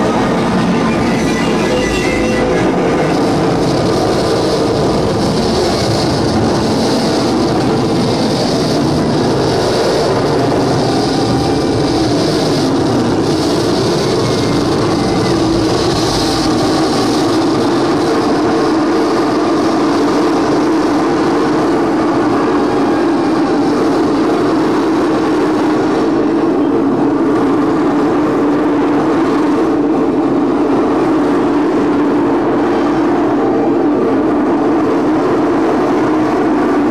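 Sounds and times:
low droning tone: 0:00.0 - 0:28.9
distorted noise drone: 0:00.0 - 0:36.9.

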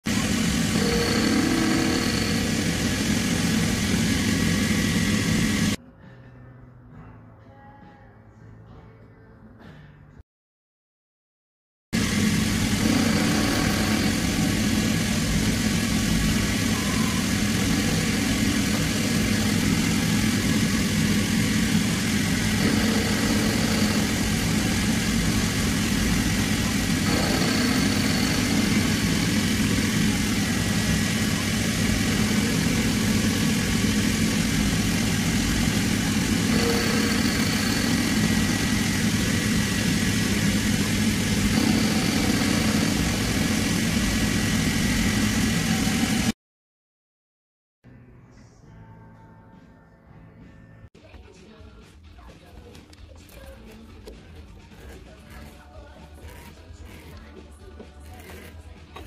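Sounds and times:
mill spindle running: 0:00.0 - 0:05.8, 0:12.0 - 0:46.4
end mill cutting brass: 0:00.1 - 0:05.8, 0:12.0 - 0:46.3.

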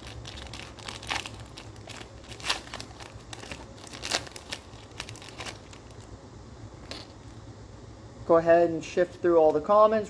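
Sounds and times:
foil wrapper being torn open: 0:00.0 - 0:06.1.

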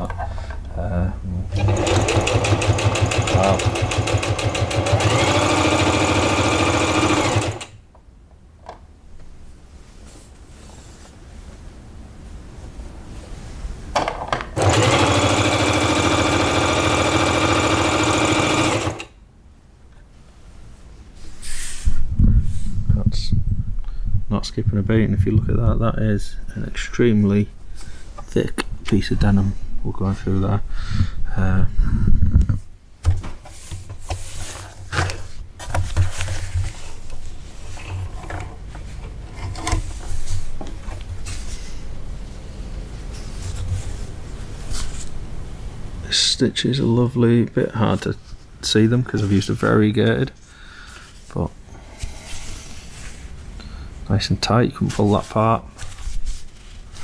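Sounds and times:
sewing machine clicks: 0:01.5 - 0:07.8, 0:14.6 - 0:19.1
sewing machine stitching: 0:01.5 - 0:07.8, 0:14.6 - 0:19.1.

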